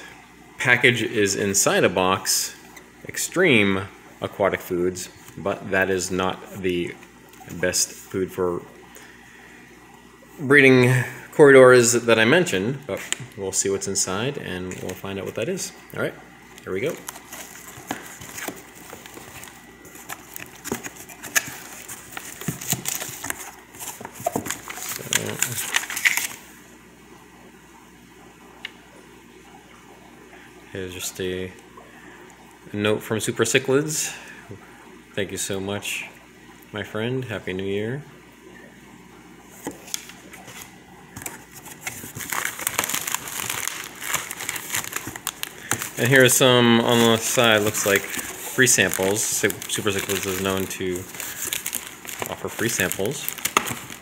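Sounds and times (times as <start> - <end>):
plastic packing crinkling: 12.9 - 15.5, 16.5 - 26.5, 39.6 - 54.0
cardboard box flaps rustling: 41.2 - 46.1.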